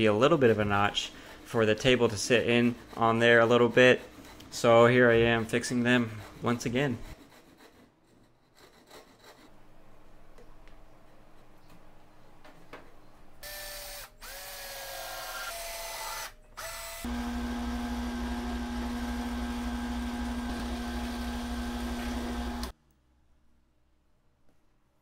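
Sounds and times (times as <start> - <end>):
drill press boring into plywood: 13.4 - 22.7
higher-pitched power tool: 13.4 - 22.7.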